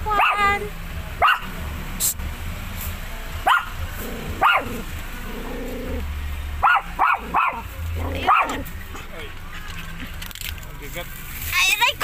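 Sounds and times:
dog barking: 0.1 - 0.5, 1.2 - 1.6, 3.4 - 3.8, 4.4 - 4.8, 6.6 - 8.7.

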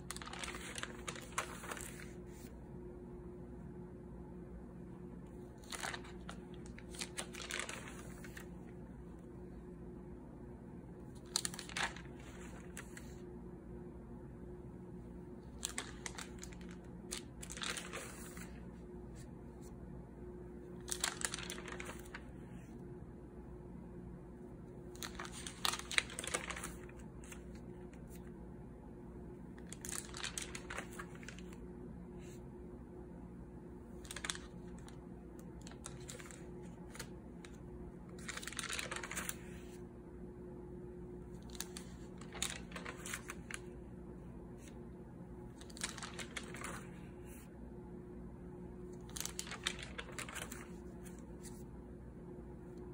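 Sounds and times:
paper rustling and tapping: 0.0 - 2.5, 5.6 - 8.6, 20.8 - 22.4, 38.2 - 39.7, 41.4 - 43.7, 45.6 - 47.0, 49.0 - 51.6
notebook pages turning: 0.0 - 2.6, 5.3 - 8.8, 11.1 - 13.2, 15.4 - 19.7, 20.6 - 22.8, 24.8 - 28.3, 29.5 - 31.6, 33.9 - 39.8, 41.3 - 43.8, 45.4 - 47.4, 48.8 - 51.7
faint steady hum: 0.0 - 52.9.

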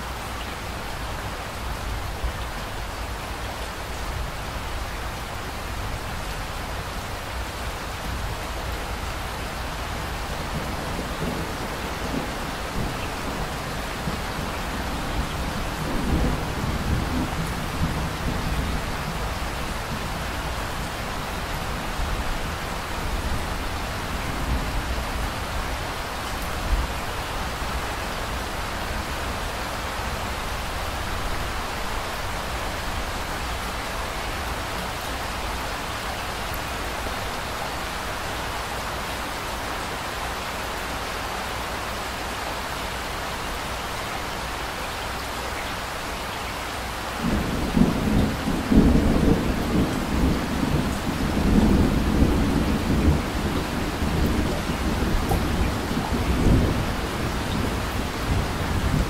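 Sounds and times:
steady rain hiss: 0.0 - 59.0
low rolling thunder: 10.4 - 20.2, 47.2 - 59.0.

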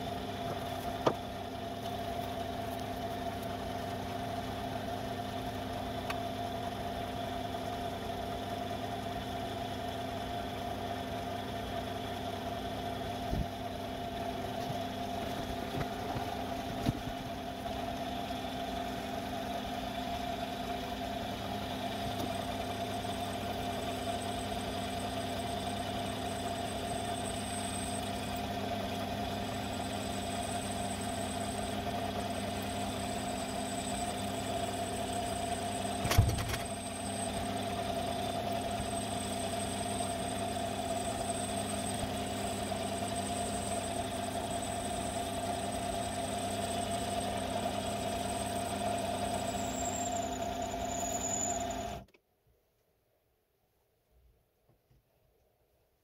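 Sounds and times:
power tool motor whining: 21.6 - 52.1
short thump: 36.0 - 36.6.

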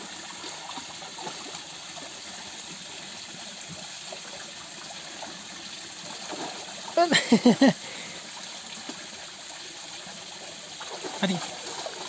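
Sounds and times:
water trickling into pool: 0.0 - 12.0.

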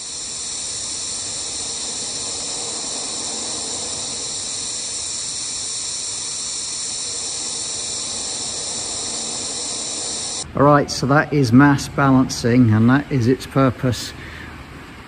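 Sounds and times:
air blowgun hissing: 0.0 - 10.4.

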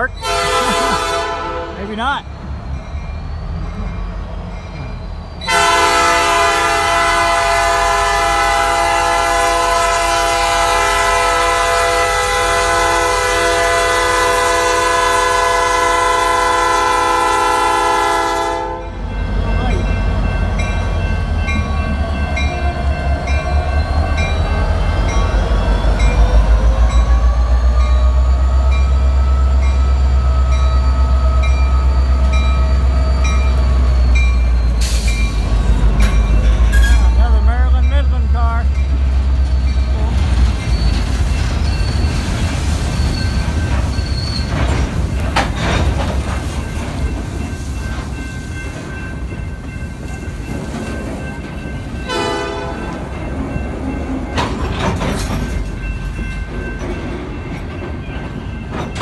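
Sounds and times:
crossing bell ringing: 0.0 - 59.0
diesel locomotive engine running: 0.0 - 59.0
locomotive air horn blast: 0.2 - 1.8, 5.5 - 18.9, 52.1 - 52.8.

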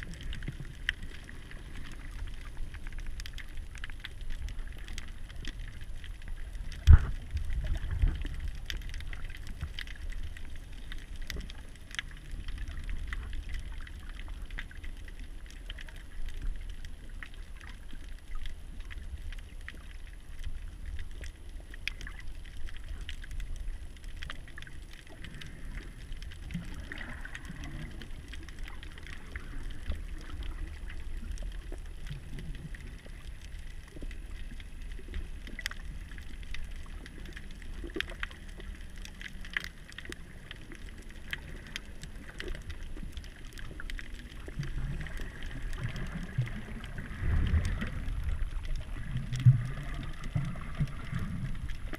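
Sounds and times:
faint clicks: 0.0 - 51.9
low underwater rumble: 0.0 - 51.9.

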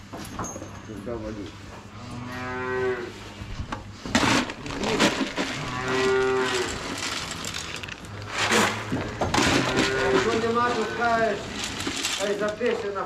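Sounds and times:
calves mooing: 1.9 - 3.3, 5.4 - 11.7
sharp knocks and rustles: 3.6 - 12.9.

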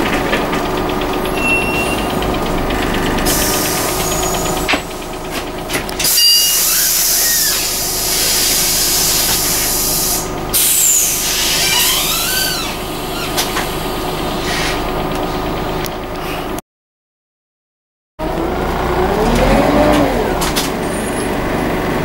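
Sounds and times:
bus engine idling: 0.0 - 16.6, 18.2 - 22.0
compressed air hissing: 3.1 - 4.7, 6.6 - 12.5.

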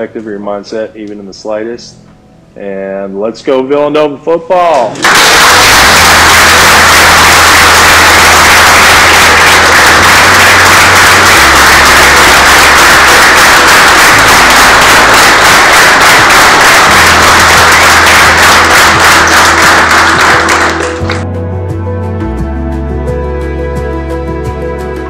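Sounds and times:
crowd applauding: 5.0 - 21.2
background music: 9.0 - 25.0.

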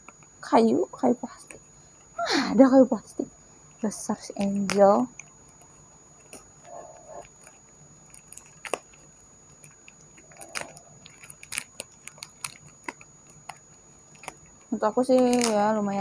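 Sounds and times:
cardboard packaging rustling: 3.6 - 16.0.

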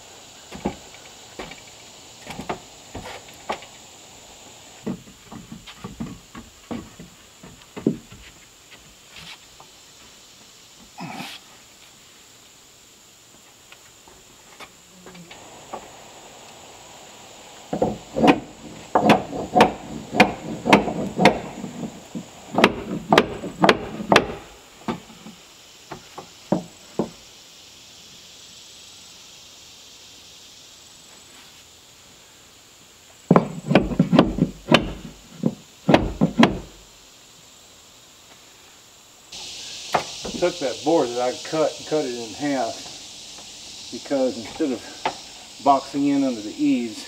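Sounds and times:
hammer driving nails into wood: 17.8 - 21.5, 22.6 - 24.5.

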